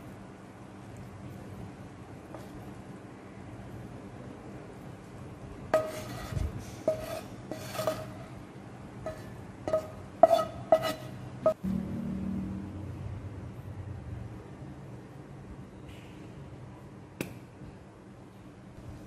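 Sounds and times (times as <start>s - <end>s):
low hum: 11.5s - 14.6s.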